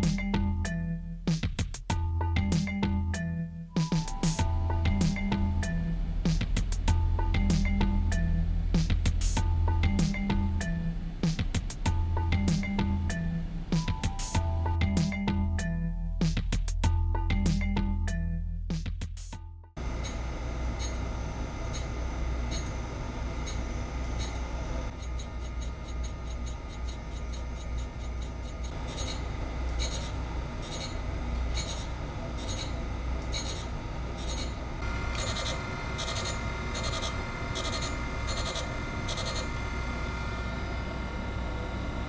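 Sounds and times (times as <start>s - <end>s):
wheel motor humming: 19.8s - 42.0s
grinding wheel scratchy bursts: 19.9s - 41.8s.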